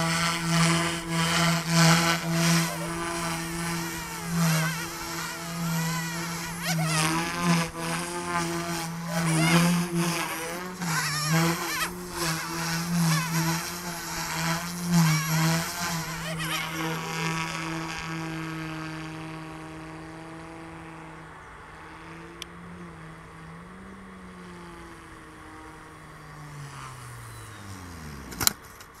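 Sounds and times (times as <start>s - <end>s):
rc helicopter rotors whining: 0.0s - 29.0s.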